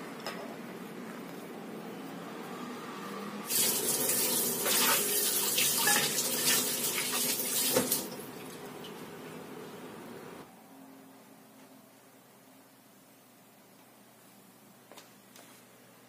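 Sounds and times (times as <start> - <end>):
tap water splashing in sink: 3.5 - 8.2.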